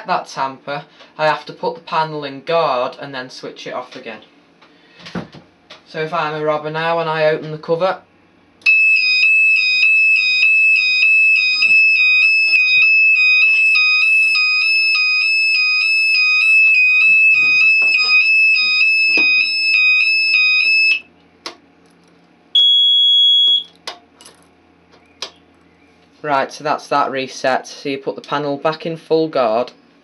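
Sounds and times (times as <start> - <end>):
high-pitched pulsing alarm tone: 8.7 - 21.1, 22.6 - 23.7
short steady beep: 22.6 - 23.7.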